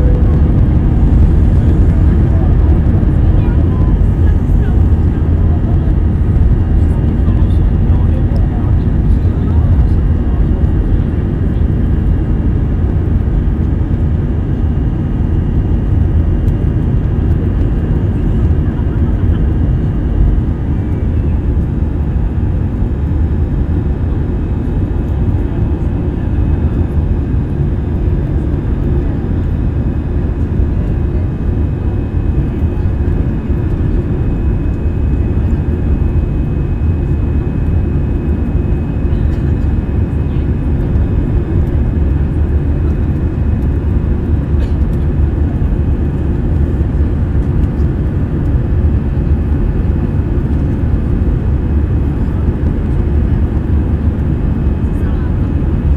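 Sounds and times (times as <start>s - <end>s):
faint high whine: 0.0s - 4.7s
airplane cabin engine drone: 0.0s - 55.9s.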